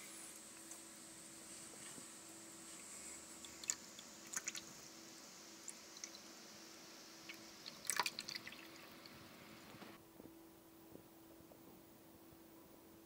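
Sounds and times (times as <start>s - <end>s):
water drips and splashes: 3.4s - 4.8s, 5.6s - 6.3s, 7.2s - 9.4s
water trickling into basin: 3.4s - 4.8s, 7.2s - 9.4s.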